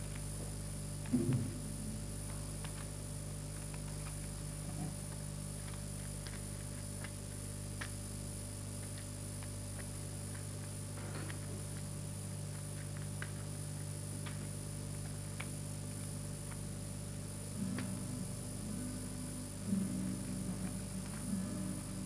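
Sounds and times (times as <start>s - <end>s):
electrical hum: 0.0s - 22.0s
film soundtrack clicks and crackles: 2.2s - 8.0s, 8.8s - 16.8s.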